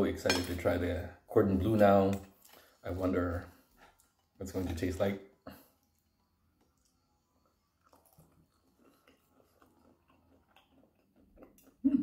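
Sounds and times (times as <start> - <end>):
person chewing food: 3.5 - 4.4, 5.4 - 12.0.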